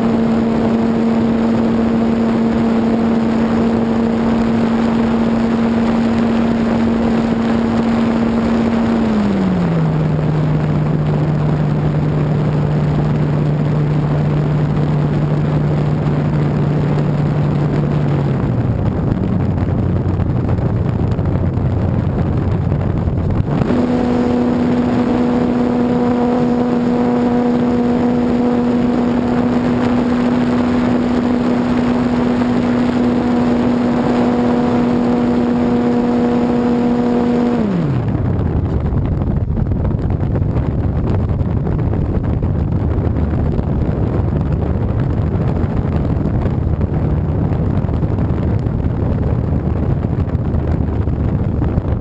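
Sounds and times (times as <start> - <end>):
electric motor and propeller whine: 0.0 - 40.3
wind rushing over microphone: 0.0 - 52.0.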